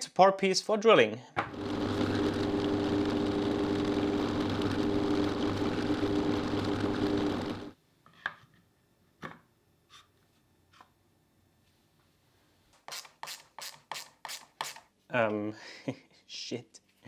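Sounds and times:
power drill drilling: 1.5s - 7.7s.

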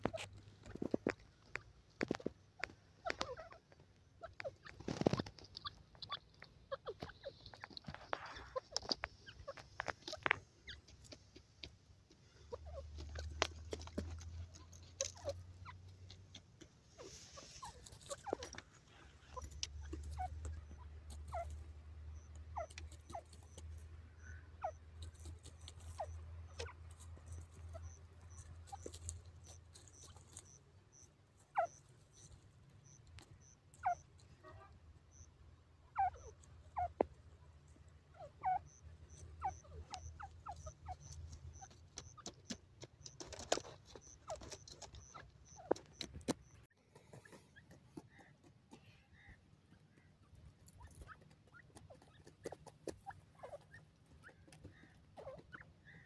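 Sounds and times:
bird pecking ground clicks: 0.0s - 16.8s, 25.0s - 30.6s, 39.9s - 55.5s
soft bird chirps: 0.0s - 56.0s.

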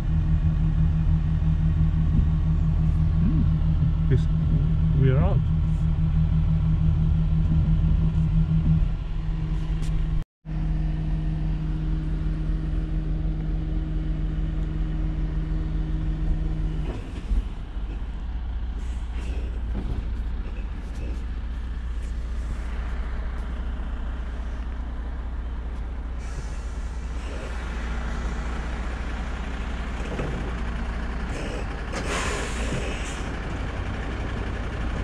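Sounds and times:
low steady rumble: 0.0s - 35.0s
vehicle engine humming: 0.0s - 35.0s.

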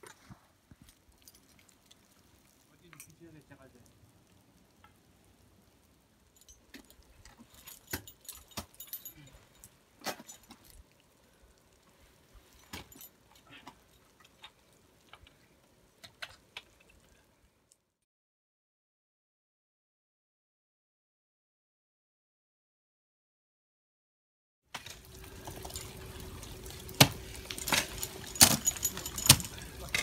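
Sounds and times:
climbing hardware clinking: 6.4s - 10.8s, 12.5s - 14.5s, 26.8s - 30.0s.

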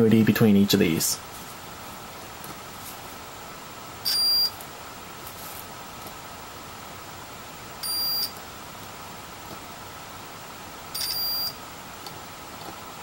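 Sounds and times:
multimeter high-pitched beep: 4.0s - 4.6s, 7.8s - 8.3s, 10.9s - 11.6s.

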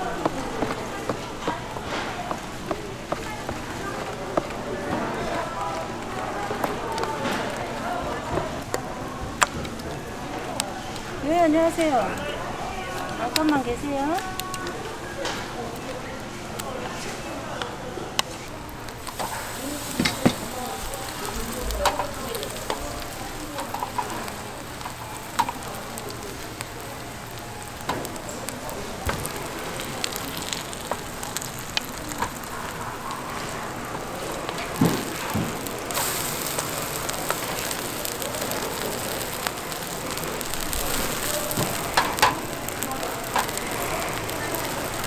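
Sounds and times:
batter sizzling in oil: 0.0s - 45.0s
spatulas tapping pan: 19.0s - 45.0s.

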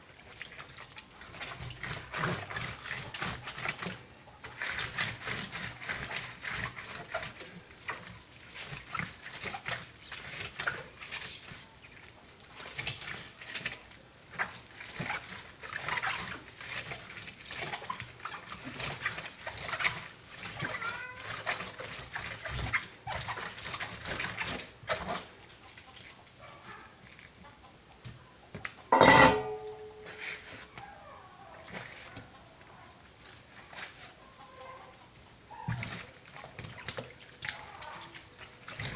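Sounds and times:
wet paper scrubbed on washboard: 1.3s - 11.7s, 12.5s - 26.8s, 29.9s - 30.9s, 33.2s - 34.4s.

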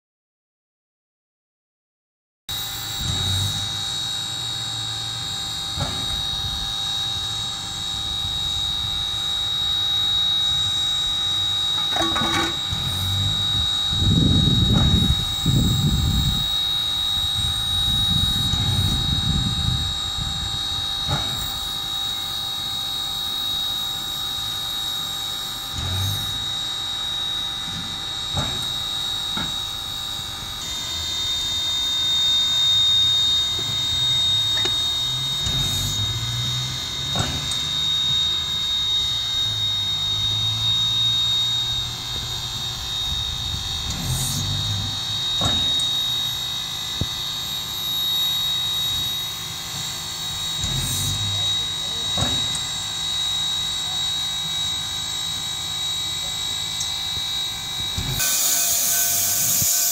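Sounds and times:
steam locomotive hissing: 2.6s - 32.2s, 57.6s - 59.9s.

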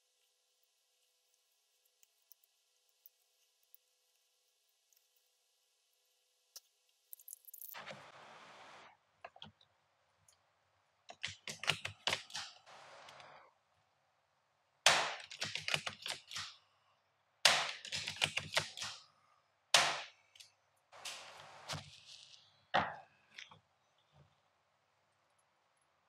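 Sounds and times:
sharp airsoft rifle shots: 14.9s - 15.4s, 17.4s - 17.9s, 19.8s - 20.2s.

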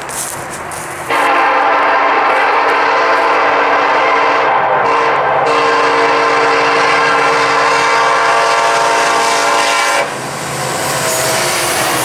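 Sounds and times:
approaching train noise: 0.0s - 12.0s
locomotive air horn: 1.1s - 10.2s.

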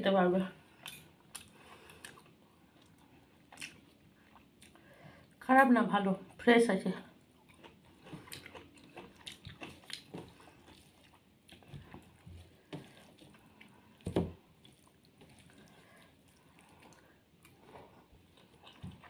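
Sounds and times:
chewing and mouth smacks: 0.8s - 4.8s, 7.2s - 19.0s
fingers squishing food: 7.2s - 19.0s.

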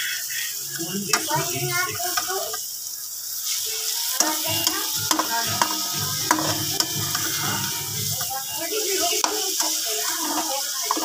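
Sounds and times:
eggs sizzling in frying pan: 0.0s - 11.0s
metal spoon scraping pan: 4.2s - 8.5s, 9.2s - 11.0s.

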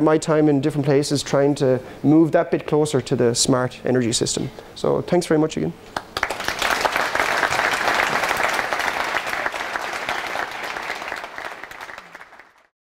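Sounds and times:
audience applauding: 6.0s - 12.7s.

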